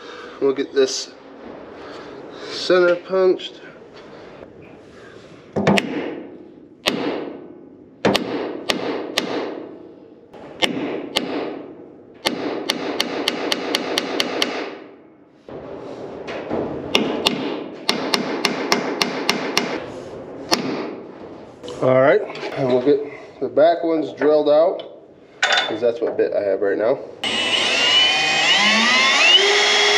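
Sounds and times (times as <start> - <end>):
hammer striking punch on steel: 5.6 - 7.4, 8.0 - 9.7, 10.6 - 14.8, 16.9 - 19.8.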